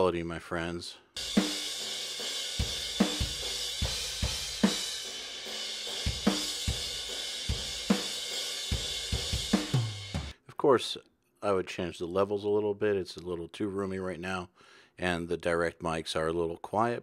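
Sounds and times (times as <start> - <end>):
cymbals and hi-hat: 1.2 - 10.4.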